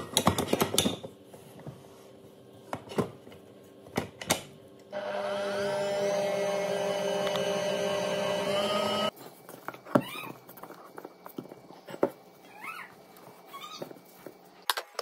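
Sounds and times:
stand mixer motor running: 5.0s - 9.1s.

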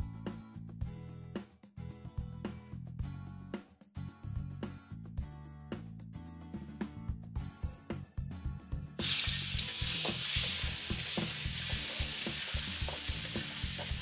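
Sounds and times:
garlic sizzling in oil: 9.0s - 14.0s.

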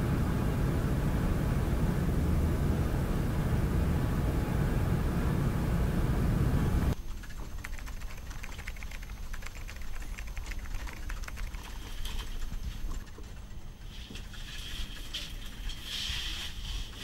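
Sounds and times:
loud steady low outdoor noise: 0.0s - 7.1s
typing on laptop keyboard: 7.0s - 15.5s.

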